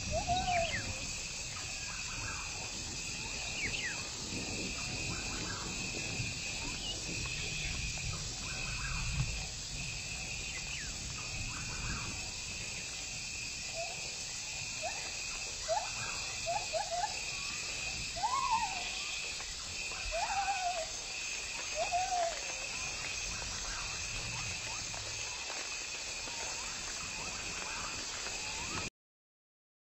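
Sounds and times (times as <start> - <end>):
insect pulsing high trill: 10.0 - 28.9.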